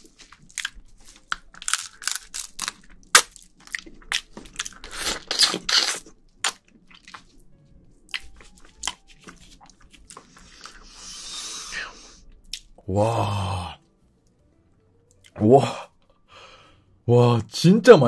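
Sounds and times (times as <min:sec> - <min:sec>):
wet eating crunches: 0:00.0 - 0:07.4, 0:08.1 - 0:10.8
sucking sounds: 0:10.3 - 0:13.8.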